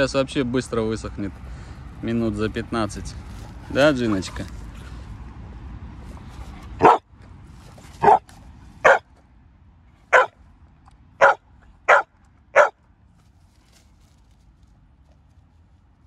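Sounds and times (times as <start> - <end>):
dog barking sharply: 6.8 - 7.0, 8.0 - 8.2, 8.8 - 9.0, 10.1 - 10.4, 11.2 - 12.8.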